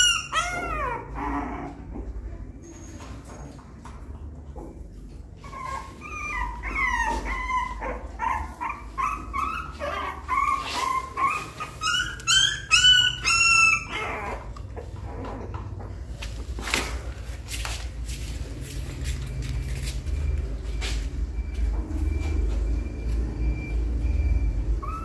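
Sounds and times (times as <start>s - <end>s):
puppy whining and yelping: 0.0s - 1.9s, 5.3s - 16.0s, 24.1s - 25.0s.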